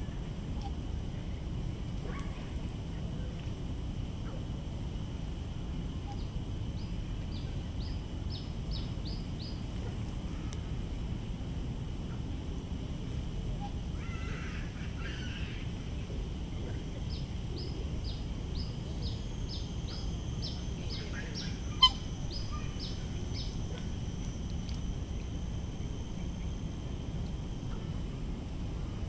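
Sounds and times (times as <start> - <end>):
low background rumble: 0.0 - 29.0
bird calling short high notes: 21.3 - 23.0.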